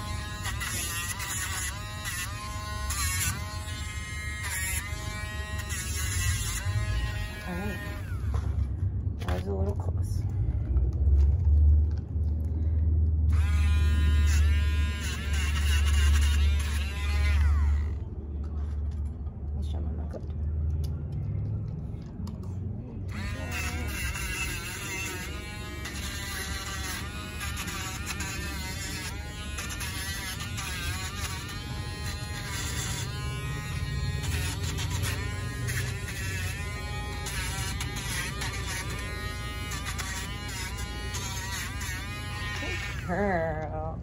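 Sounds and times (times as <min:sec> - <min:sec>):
rotary nail grinder buzzing: 0:00.0 - 0:08.4, 0:13.3 - 0:18.0, 0:23.1 - 0:43.7.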